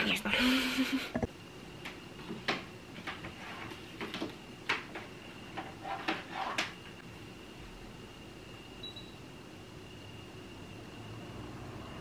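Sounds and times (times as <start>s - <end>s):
faint steady high tone: 7.2s - 11.3s.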